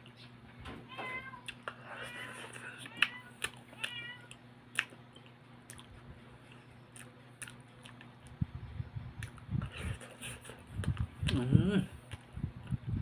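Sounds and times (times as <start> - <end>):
cat meowing: 0.9 - 4.4
chewing soft fruit: 1.4 - 8.4, 9.2 - 12.9
wet mouth clicks: 9.2 - 9.7.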